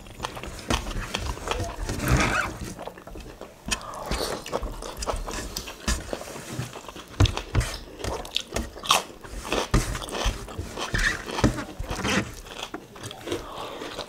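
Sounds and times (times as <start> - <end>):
wet chewing and smacking: 0.0 - 14.0
fingers scraping metal tray: 8.6 - 12.6.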